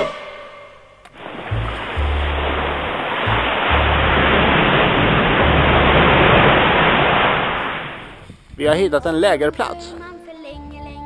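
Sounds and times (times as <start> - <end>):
wind and spray rushing: 1.1 - 8.9
motorboat running fast: 1.2 - 8.2
low wind rumble on microphone: 1.2 - 9.2.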